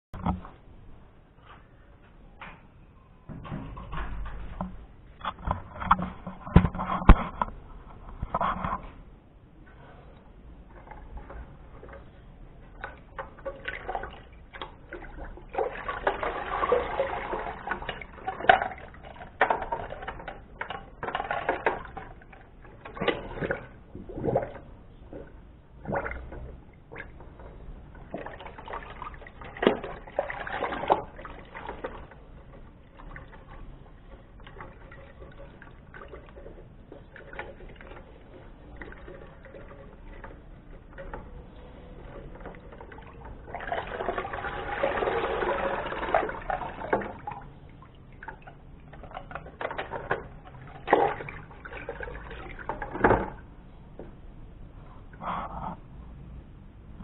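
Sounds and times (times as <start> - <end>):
water sloshing in a bucket: 9.9 - 54.2.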